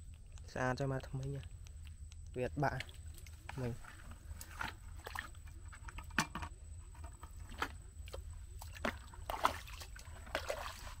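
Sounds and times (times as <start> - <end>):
footsteps squelching in mud: 2.7 - 5.6, 7.4 - 11.0.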